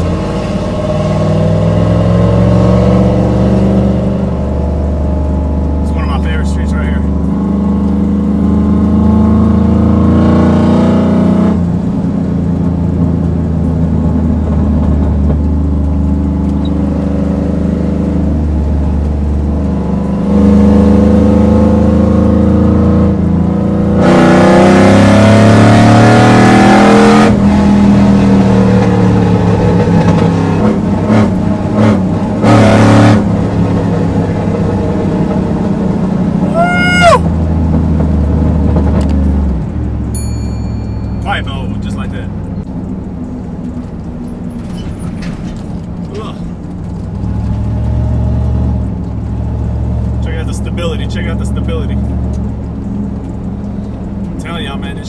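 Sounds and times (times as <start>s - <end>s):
car engine from inside cab: 0.0s - 55.0s.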